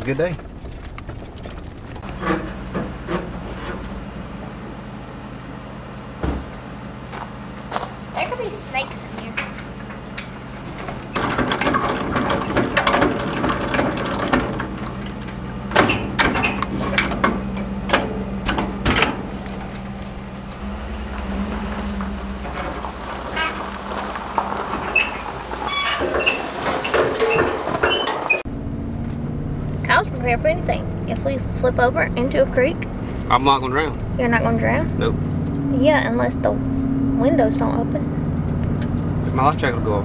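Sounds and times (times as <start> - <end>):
low hum: 0.0 - 40.0
hand winch cranking: 9.4 - 17.7, 22.2 - 28.4
metal clicks and rattles: 9.4 - 19.8.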